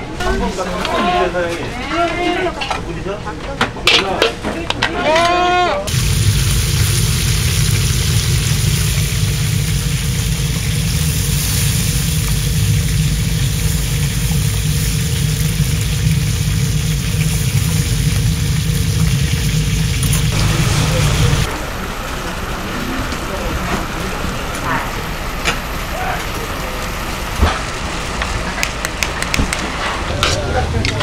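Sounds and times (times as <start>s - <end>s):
gas burners roaring: 3.9s - 31.0s
hot oil sizzling: 5.9s - 22.7s.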